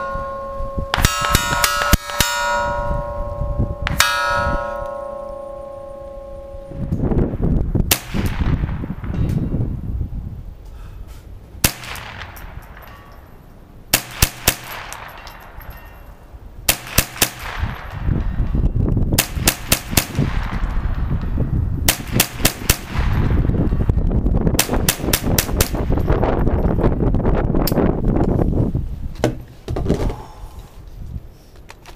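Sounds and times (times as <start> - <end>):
rifle shots with echo: 7.9 - 9.1, 11.6 - 13.1, 13.9 - 15.7, 16.7 - 18.4, 19.2 - 21.2, 21.9 - 23.4.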